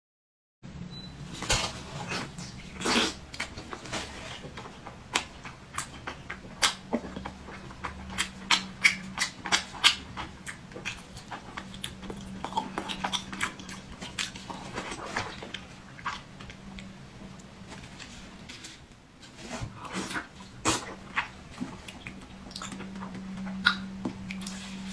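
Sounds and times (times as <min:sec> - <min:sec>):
wet chewing and lip-smacking: 0:04.6 - 0:17.5, 0:20.0 - 0:24.9.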